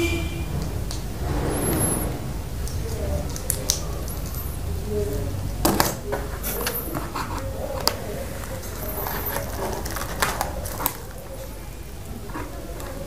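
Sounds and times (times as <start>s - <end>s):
steady low hum: 0.0s - 4.9s.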